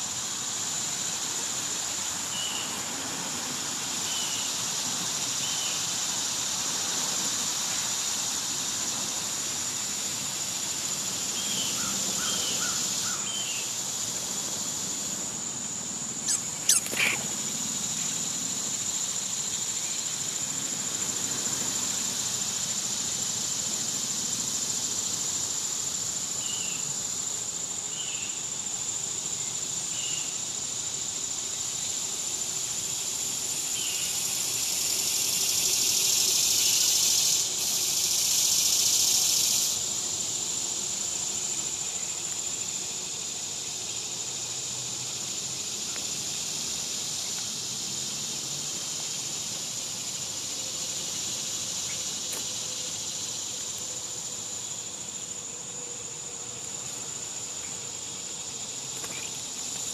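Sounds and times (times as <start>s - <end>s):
high-pitched insect chorus: 0.0s - 59.9s
short bird chirps: 16.3s - 17.3s.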